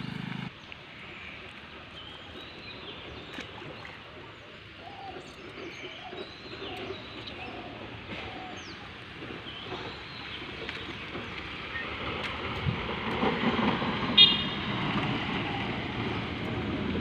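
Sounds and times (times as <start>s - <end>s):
birds chirping: 0.0s - 12.2s.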